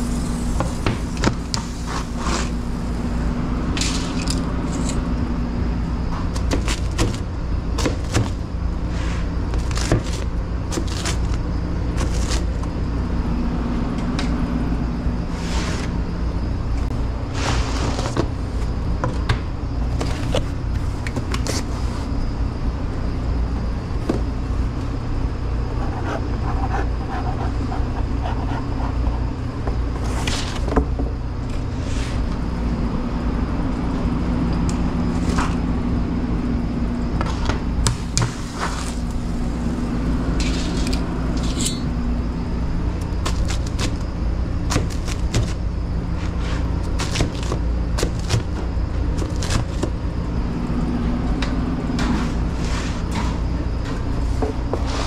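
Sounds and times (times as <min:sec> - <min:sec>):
higher hum: 0:00.0 - 0:06.2, 0:31.1 - 0:43.2
low machinery hum: 0:00.0 - 0:55.0
pizza boxes clicking and scraping: 0:00.8 - 0:02.6, 0:06.2 - 0:12.8, 0:17.3 - 0:18.7, 0:19.8 - 0:22.1, 0:25.8 - 0:30.9, 0:43.1 - 0:44.1, 0:44.7 - 0:50.0.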